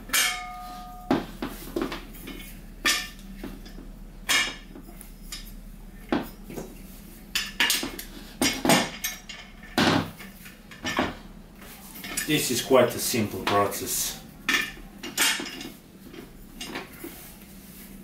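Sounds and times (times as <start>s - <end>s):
chair casters clacking and knocking: 7.4s - 11.3s, 11.9s - 17.3s.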